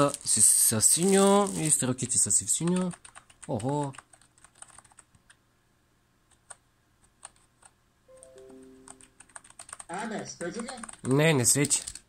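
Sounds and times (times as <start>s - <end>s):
keyboard keystrokes: 7.2s - 9.9s, 10.6s - 12.0s.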